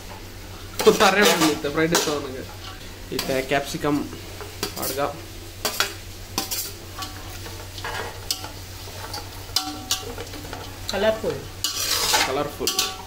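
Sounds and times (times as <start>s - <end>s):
vegetables sizzling in a pan: 0.0s - 13.0s
spatula scraping and knocking pan: 0.8s - 3.4s, 5.6s - 13.0s.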